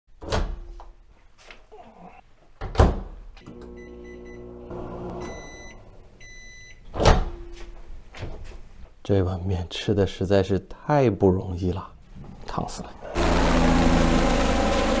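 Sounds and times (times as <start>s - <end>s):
microwave oven humming: 3.5s - 6.0s
long beeps: 3.8s - 4.5s, 5.2s - 6.8s.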